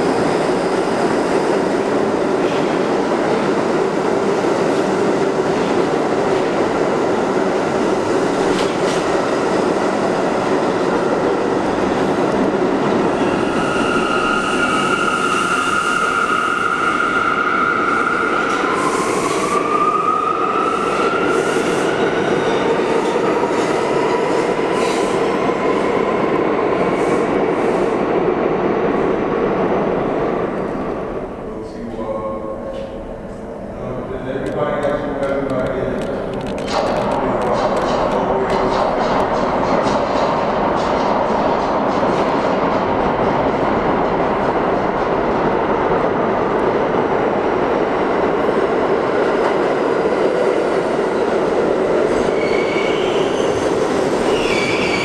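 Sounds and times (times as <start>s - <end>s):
train wheels rumbling on rails: 0.0s - 30.9s, 31.8s - 55.0s
high wheel squeal: 52.3s - 53.6s, 54.2s - 55.0s.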